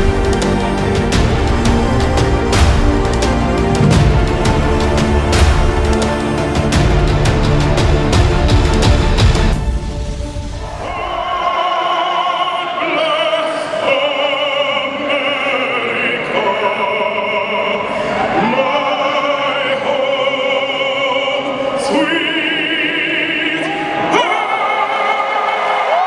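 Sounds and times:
man singing operatically: 0:10.8 - 0:25.2.

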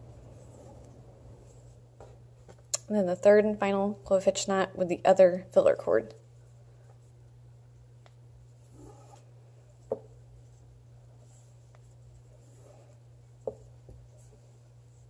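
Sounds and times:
cords rustling and dragging: 0:00.0 - 0:02.6, 0:08.4 - 0:15.0.

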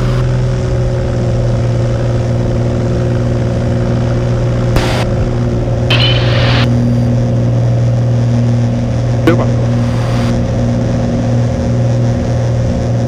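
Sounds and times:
airplane engine drone: 0:00.0 - 0:13.0.

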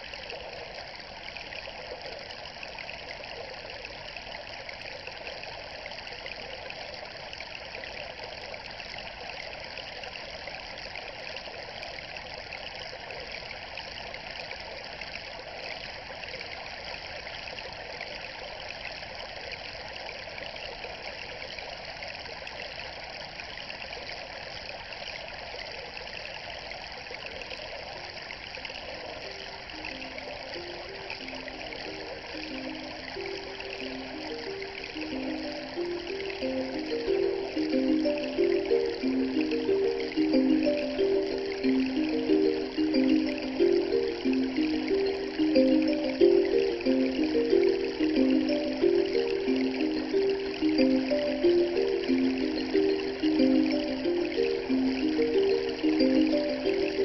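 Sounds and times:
running water rushing: 0:26.0 - 0:57.0.

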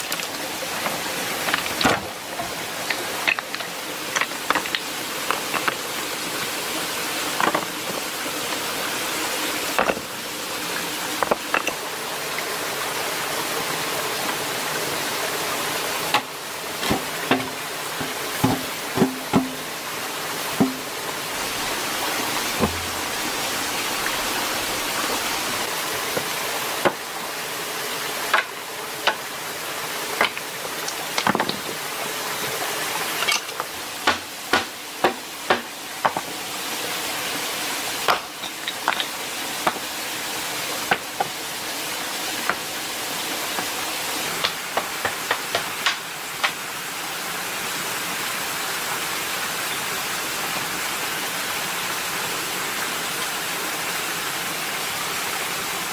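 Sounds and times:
flowing water rushing: 0:00.0 - 0:55.9
bamboo poles knocking: 0:07.4 - 0:07.8, 0:09.8 - 0:10.1, 0:16.1 - 0:19.7, 0:20.6 - 0:20.9, 0:22.6 - 0:23.0, 0:33.6 - 0:36.3.

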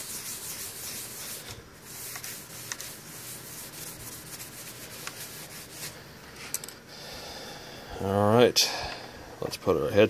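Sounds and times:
towel rubbing on metal plate: 0:00.0 - 0:06.0.

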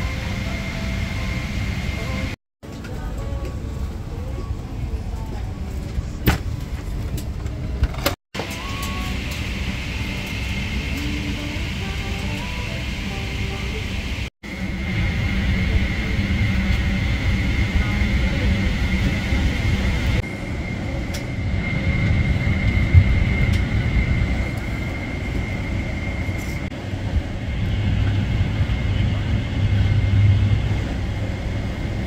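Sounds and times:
low cabin rumble: 0:00.0 - 0:32.0
thin high whine: 0:08.4 - 0:32.0.

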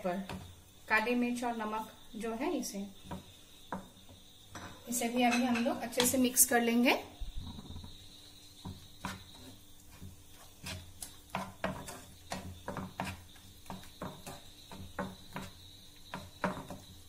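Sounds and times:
spatula scraping frying pan: 0:08.6 - 0:17.0.

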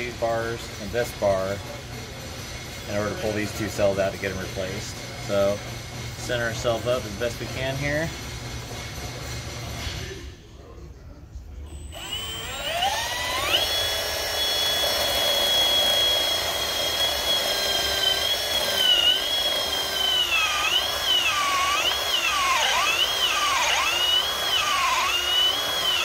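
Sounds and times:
cordless drill whine: 0:11.7 - 0:26.0.

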